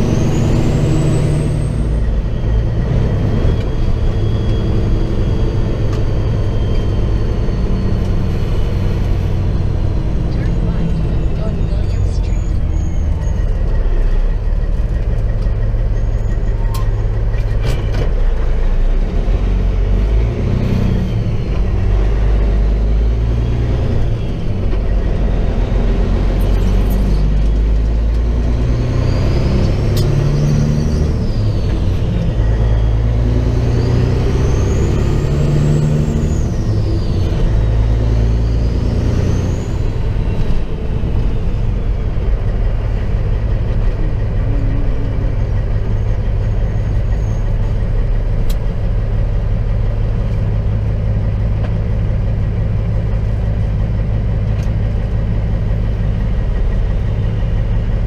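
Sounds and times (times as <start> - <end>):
truck diesel engine: 0.0 - 58.0.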